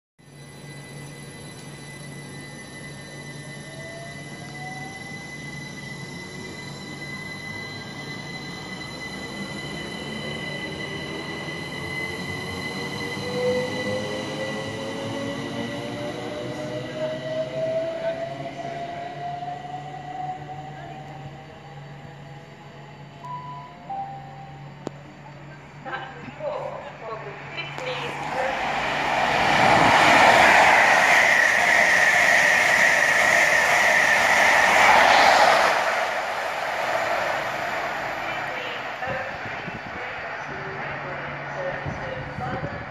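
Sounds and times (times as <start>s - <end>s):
electric train arriving: 0.2s - 42.9s
high whine of passing coaches: 0.2s - 42.9s
train wheels rushing on rail: 26.0s - 42.9s.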